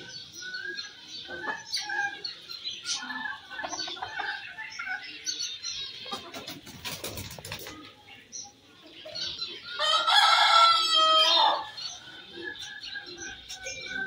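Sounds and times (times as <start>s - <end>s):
birds chirping and calling: 0.0s - 14.0s.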